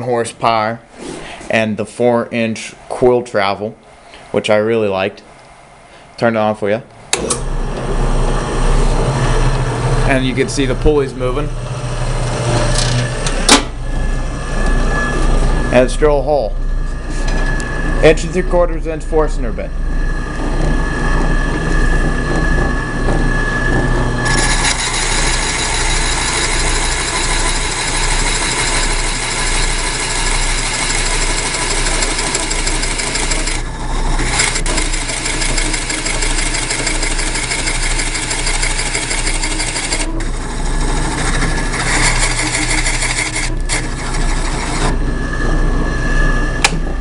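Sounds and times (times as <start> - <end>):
drill press motor whine: 7.0 - 47.0
drill bit boring into wood: 24.2 - 45.0.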